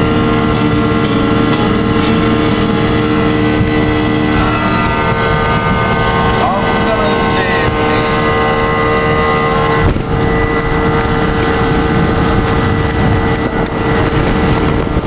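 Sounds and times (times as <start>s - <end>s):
motorboat engine droning: 0.0s - 15.0s
water rushing past hull: 0.0s - 15.0s
wind buffeting microphone: 0.0s - 15.0s.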